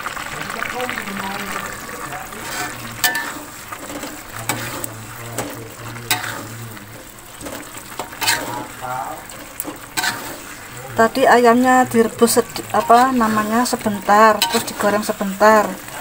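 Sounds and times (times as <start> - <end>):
food sizzling in a wok: 0.0 - 16.0
metal spoon scraping a wok: 2.4 - 6.6, 7.3 - 10.7, 12.0 - 16.0.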